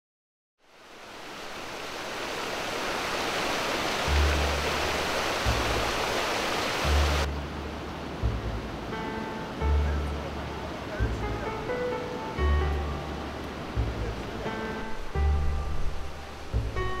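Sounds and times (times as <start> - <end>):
river water rushing over weir: 0.6 - 17.0
deep bass music: 4.1 - 6.0, 6.8 - 17.0.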